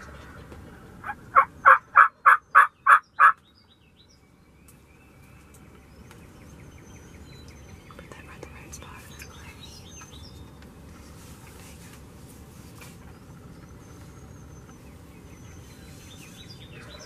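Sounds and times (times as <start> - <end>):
faint songbird chirps: 0.0 - 11.6, 12.6 - 17.0
turkey yelps: 1.0 - 3.4.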